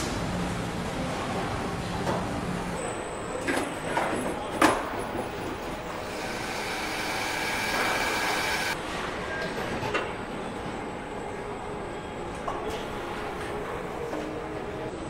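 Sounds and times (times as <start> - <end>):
high machine whine: 5.8 - 8.8.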